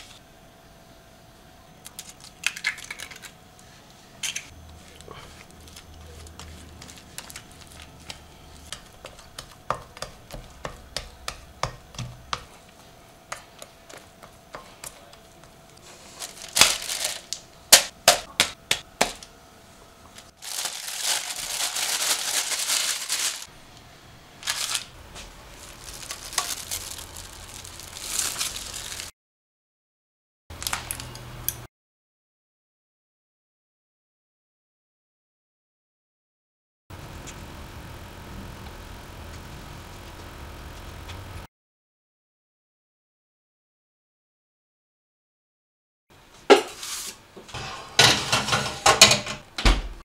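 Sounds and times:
crinkling noise: 0:04.2 - 0:09.5, 0:15.8 - 0:17.5, 0:20.1 - 0:23.5, 0:24.4 - 0:29.1
spatula slapping dough in bowl: 0:05.7 - 0:15.2.

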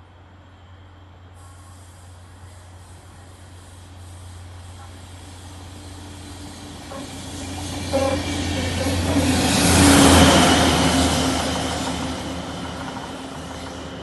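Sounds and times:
loud hiss of passing vehicle: 0:00.0 - 0:07.8
rail vehicle engine drone: 0:00.0 - 0:14.0.

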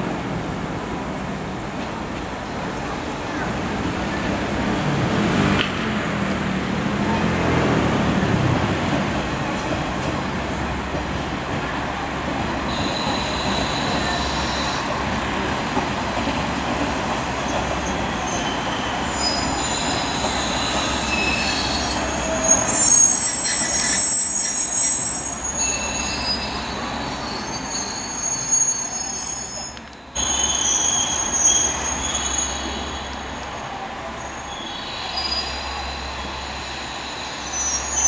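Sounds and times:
low rumble of rolling train: 0:00.0 - 0:38.0
train wheels squealing: 0:12.5 - 0:15.5, 0:17.2 - 0:38.0.

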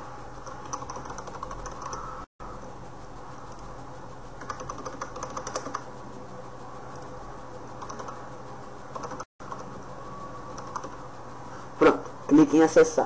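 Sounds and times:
low hum: 0:00.0 - 0:13.0
keyboard typing: 0:00.4 - 0:02.3, 0:04.4 - 0:05.9, 0:07.8 - 0:08.3, 0:08.9 - 0:09.8, 0:10.5 - 0:11.0.

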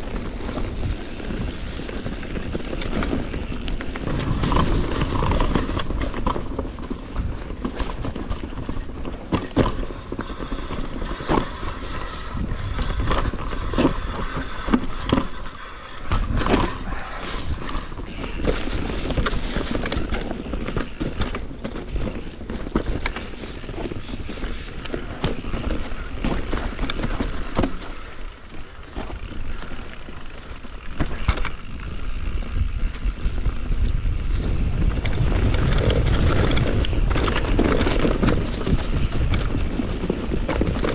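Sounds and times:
tyres rumbling over dirt: 0:00.0 - 0:40.9.

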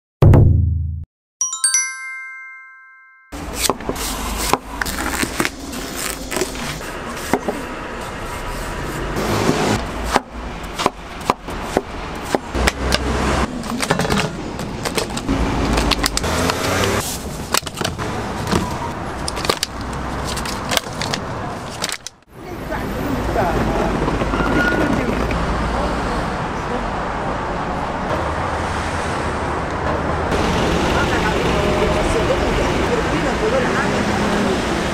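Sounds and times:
short chime: 0:01.4 - 0:03.4
street traffic hum: 0:03.4 - 0:34.9
knife chopping on wooden board: 0:09.4 - 0:13.1.

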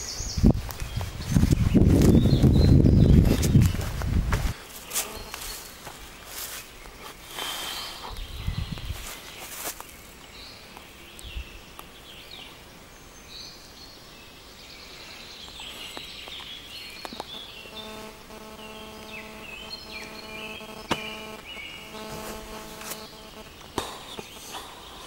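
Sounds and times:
birds singing: 0:00.0 - 0:25.0
steady droning hum: 0:17.3 - 0:25.0.

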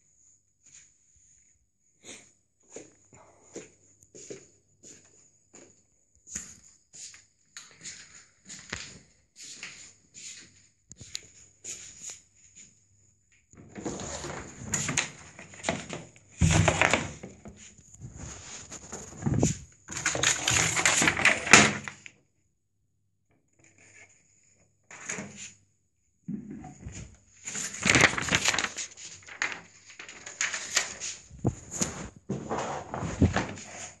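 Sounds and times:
microphone rubbing on cloth: 0:17.8 - 0:19.7, 0:31.3 - 0:33.4
footsteps in slippers: 0:18.0 - 0:19.6.

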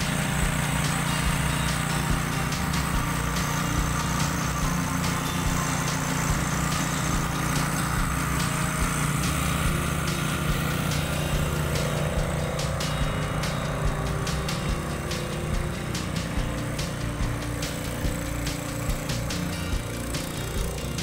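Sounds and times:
heavy vehicle engine running: 0:00.0 - 0:21.0.

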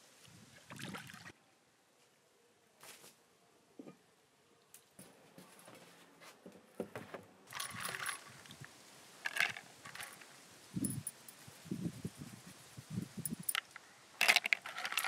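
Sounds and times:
clam shells clinking: 0:07.5 - 0:08.5, 0:09.2 - 0:11.2, 0:13.3 - 0:15.0.

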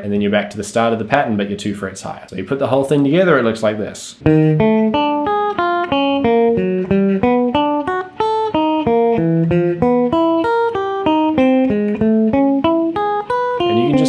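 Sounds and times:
clean electric guitar arpeggio: 0:04.2 - 0:14.0.

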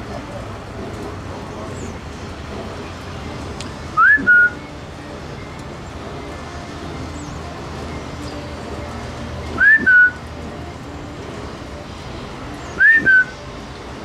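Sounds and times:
loud sliding whistle: 0:04.0 - 0:04.6, 0:09.6 - 0:10.2, 0:12.8 - 0:13.4.

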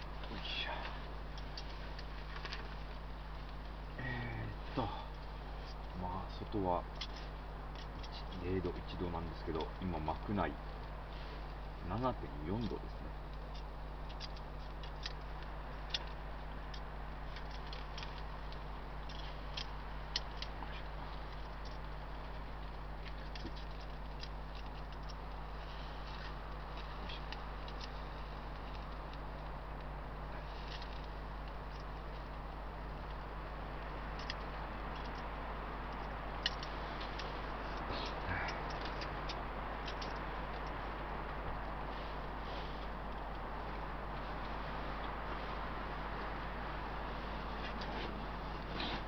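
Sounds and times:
steady low hum: 0:00.0 - 0:49.0
small ticks and pops: 0:12.0 - 0:41.9.

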